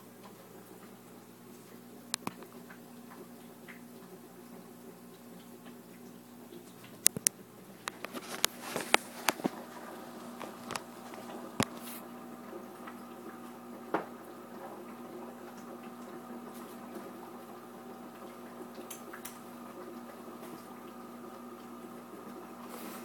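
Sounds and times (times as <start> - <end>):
aquarium filter bubbling: 0.0 - 23.0
steady hum: 7.0 - 23.0.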